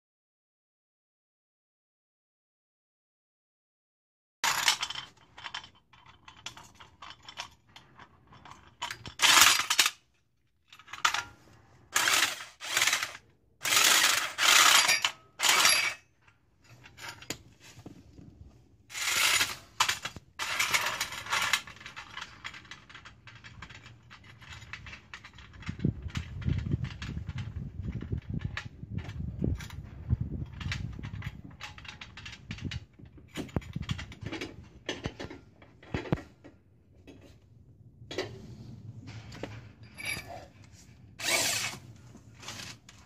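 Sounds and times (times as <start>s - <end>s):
electric impact wrench bursts: 12.0s - 14.8s, 41.2s - 41.8s.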